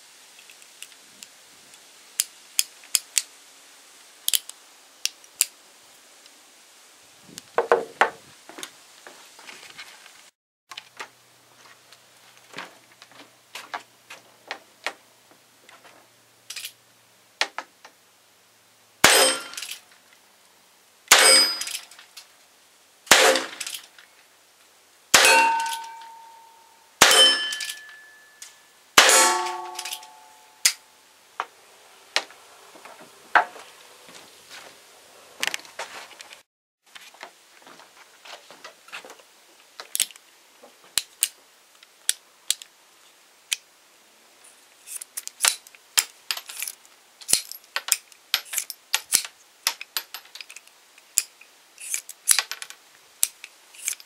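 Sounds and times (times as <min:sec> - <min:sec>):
pistol shots: 0:19.0 - 0:19.6, 0:21.1 - 0:21.7, 0:23.1 - 0:23.7, 0:25.2 - 0:25.8, 0:27.0 - 0:27.8, 0:29.0 - 0:30.1.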